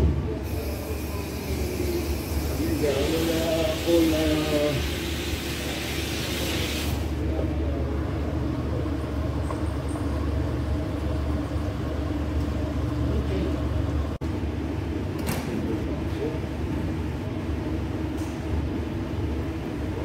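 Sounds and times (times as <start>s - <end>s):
low mechanical hum: 0.0s - 20.0s
hiss: 0.4s - 7.2s.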